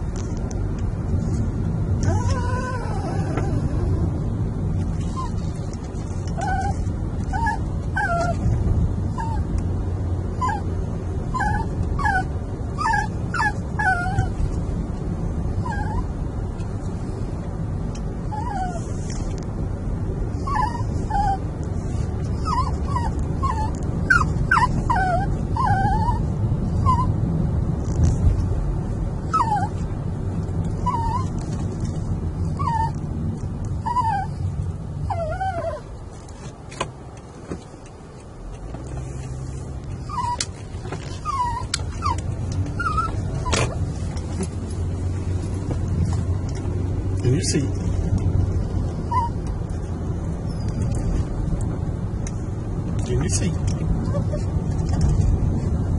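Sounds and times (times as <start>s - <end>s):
road noise rumble: 0.0s - 55.9s
small dog whining: 2.0s - 4.2s, 5.0s - 8.5s, 9.1s - 9.5s, 10.3s - 10.7s, 11.3s - 14.4s, 15.6s - 16.1s, 18.2s - 19.1s, 20.4s - 27.2s, 29.3s - 29.9s, 30.7s - 31.5s, 32.4s - 33.0s, 33.8s - 35.9s, 40.0s - 44.1s, 48.8s - 49.6s, 50.4s - 51.2s, 54.0s - 55.1s.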